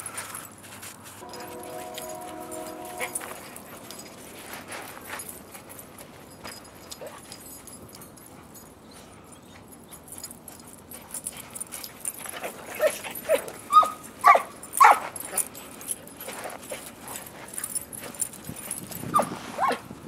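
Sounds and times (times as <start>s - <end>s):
dogs yipping and barking: 6.8s - 19.9s.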